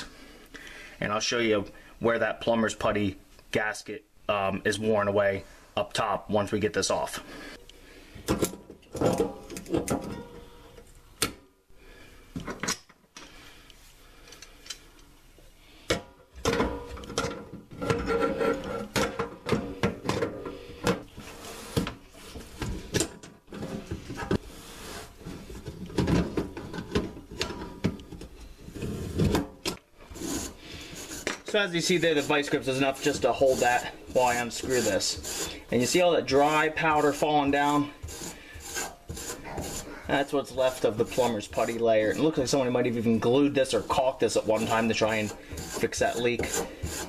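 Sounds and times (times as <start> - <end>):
tool jaws scraping metal: 17.7 - 19.2, 30.1 - 47.0.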